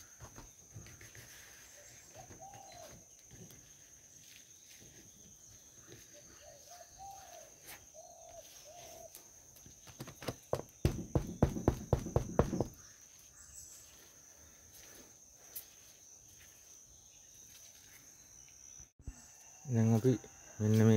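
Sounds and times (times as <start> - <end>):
bird cooing: 1.8 - 3.0, 6.0 - 9.1.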